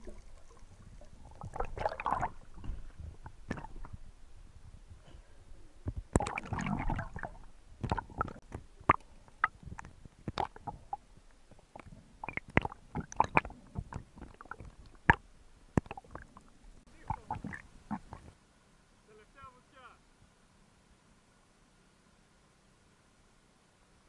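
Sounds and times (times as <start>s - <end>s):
water splashing: 0.0s - 4.0s, 6.0s - 15.2s, 15.8s - 18.3s
water sloshing and gurgling: 0.0s - 18.4s.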